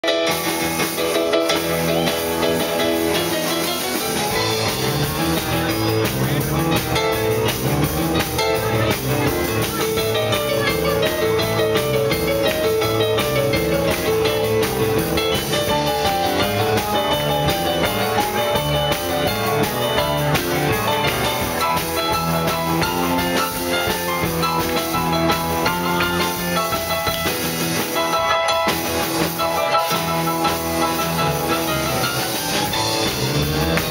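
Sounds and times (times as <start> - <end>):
bass line: 0.0 - 33.9
drum kit: 0.0 - 33.9
electric guitar: 0.0 - 33.9
piano-style keyboard: 0.0 - 33.9.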